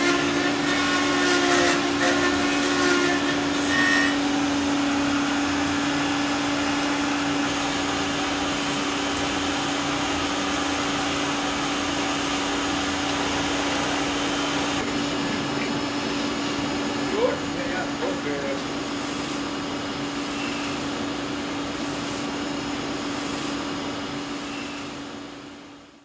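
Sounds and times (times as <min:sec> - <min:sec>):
electric motor humming: 0:00.0 - 0:23.5
hiss: 0:21.7 - 0:22.4, 0:23.0 - 0:25.0.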